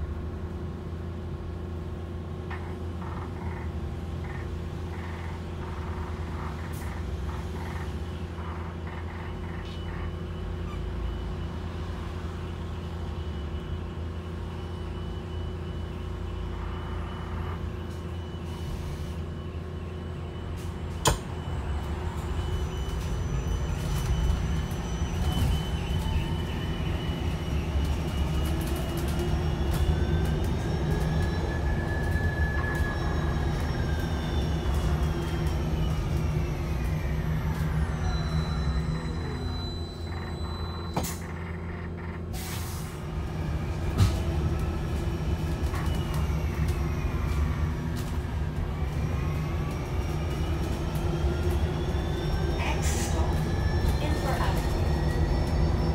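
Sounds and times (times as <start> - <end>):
bus interior hum with high whine: 0.0 - 55.9
electric drive whine rising: 43.0 - 55.9.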